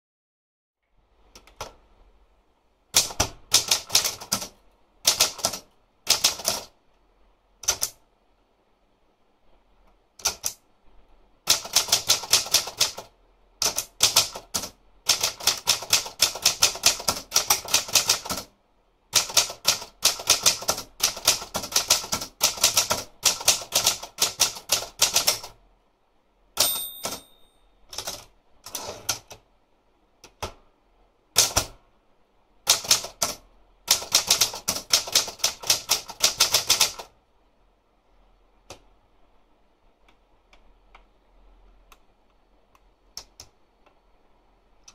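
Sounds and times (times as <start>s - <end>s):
typewriter keystroke clacks: 3.0s - 6.7s, 7.6s - 8.0s, 10.2s - 10.6s, 11.5s - 18.5s, 19.2s - 25.5s, 27.9s - 29.4s, 31.4s - 31.8s, 32.7s - 37.1s
typewriter bell ding: 26.6s - 27.8s.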